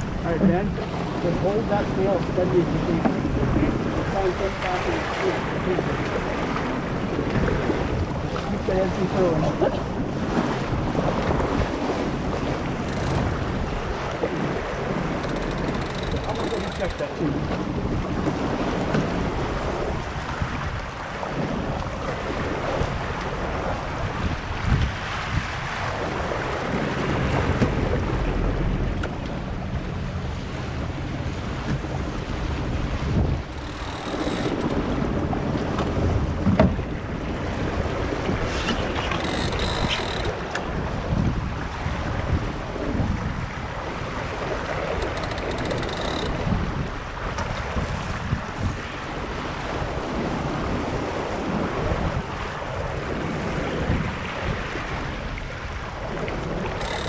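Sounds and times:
water rushing past hull: 0:00.0 - 0:57.0
wind buffeting microphone: 0:00.0 - 0:57.0.

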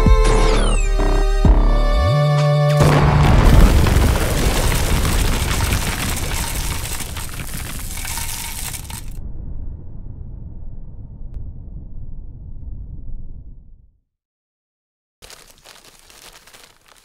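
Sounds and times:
explosion with crackling rumble: 0:02.8 - 0:13.9.

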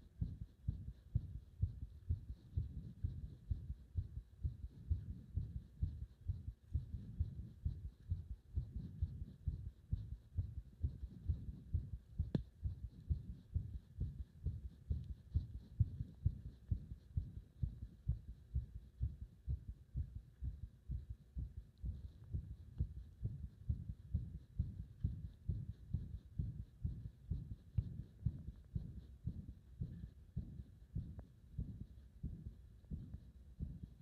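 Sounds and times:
heartbeat thumps: 0:00.0 - 0:34.0.

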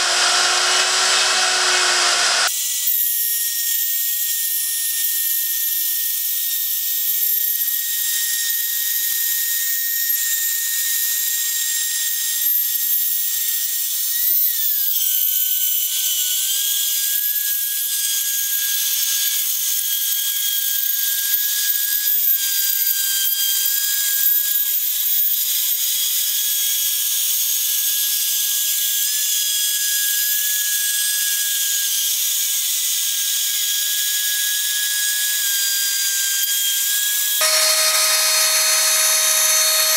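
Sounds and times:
router spindle whining: 0:00.0 - 0:02.9, 0:31.5 - 0:39.9
bit cutting plywood hiss: 0:33.4 - 0:39.9.

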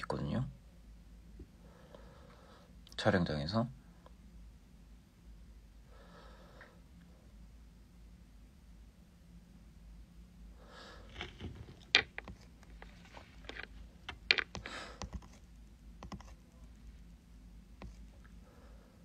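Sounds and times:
soft rustles: 0:11.0 - 0:15.5.

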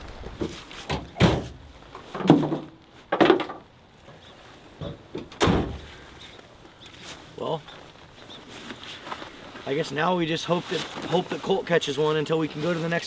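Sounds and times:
truck tailgate metal thunks: 0:05.2 - 0:05.9.

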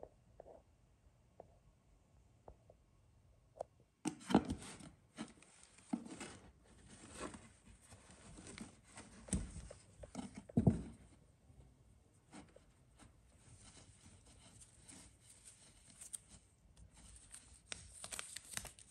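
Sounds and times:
clothing and plastic rustling: 0:04.6 - 0:11.2, 0:12.3 - 0:18.9.

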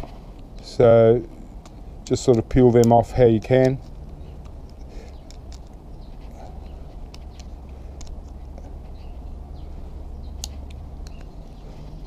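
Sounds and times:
steady low hum: 0:00.0 - 0:12.0
side cutters clicking on metal: 0:01.6 - 0:05.8.

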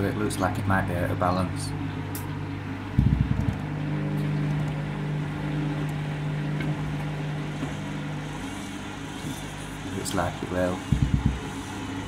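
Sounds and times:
washing machine drum humming: 0:00.0 - 0:12.0.

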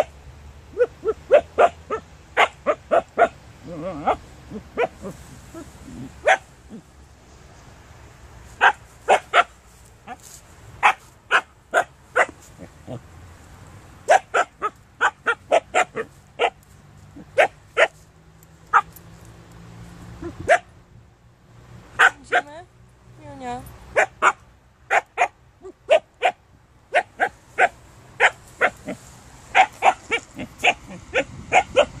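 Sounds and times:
dog barking: 0:00.7 - 0:05.2, 0:06.0 - 0:06.8, 0:08.6 - 0:10.2, 0:10.8 - 0:13.0, 0:14.1 - 0:16.6, 0:17.2 - 0:18.0, 0:18.7 - 0:18.9, 0:20.2 - 0:20.7, 0:22.0 - 0:22.5, 0:23.9 - 0:32.0.

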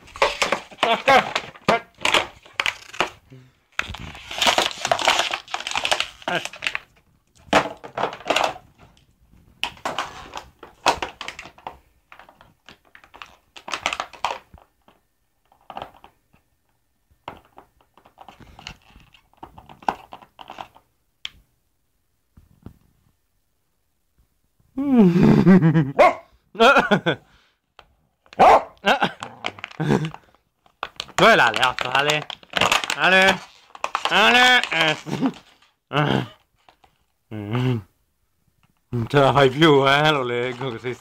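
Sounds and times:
dog crushing plastic bottle: 0:00.0 - 0:16.2, 0:17.2 - 0:20.9, 0:27.8 - 0:35.8, 0:39.9 - 0:41.0.

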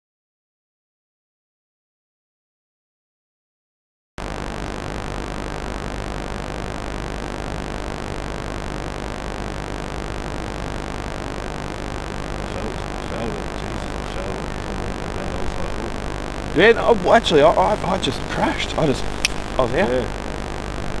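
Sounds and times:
low even hum: 0:11.6 - 0:21.0
steady hiss: 0:11.6 - 0:21.0.

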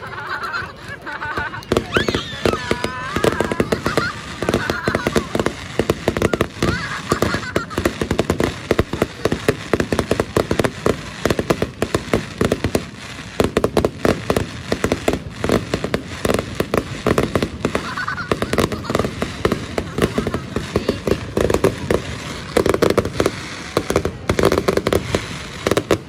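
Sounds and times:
fireworks crackling: 0:00.0 - 0:26.0.

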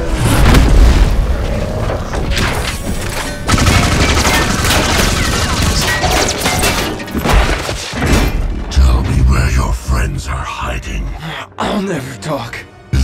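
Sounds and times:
music: 0:01.5 - 0:13.0.

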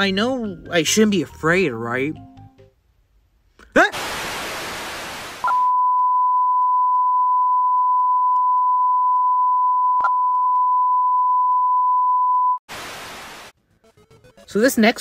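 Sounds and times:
television static hiss: 0:04.0 - 0:05.4, 0:12.7 - 0:13.5
steady single-pitch beep tone: 0:05.5 - 0:12.6.

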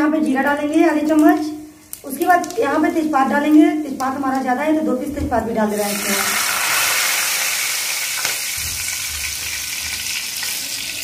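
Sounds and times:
spices sizzling in hot oil: 0:05.7 - 0:11.0.

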